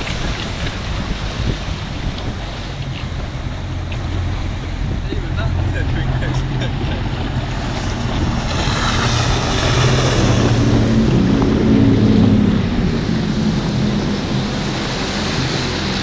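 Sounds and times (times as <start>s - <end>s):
motorboat engine running: 0.0s - 16.0s
rushing water: 0.0s - 16.0s
rushing wind: 0.0s - 16.0s.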